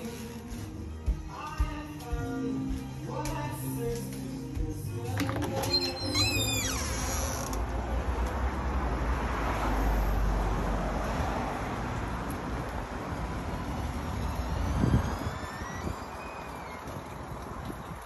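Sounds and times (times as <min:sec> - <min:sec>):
vehicle passing: 0:07.3 - 0:18.0.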